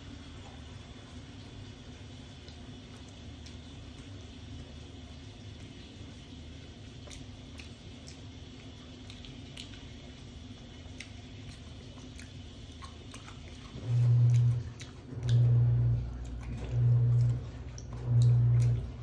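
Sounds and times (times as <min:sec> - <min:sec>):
chewing and clicks while eating: 0:01.3 - 0:19.0
low pulsing buzz: 0:13.6 - 0:19.0.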